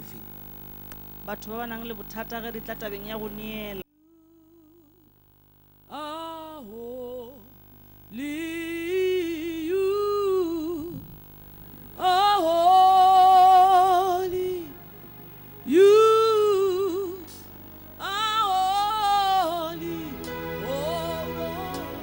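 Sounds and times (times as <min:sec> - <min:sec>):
person singing: 0:03.9 - 0:05.1, 0:05.9 - 0:07.5, 0:08.1 - 0:11.1, 0:12.0 - 0:15.0, 0:15.6 - 0:22.0.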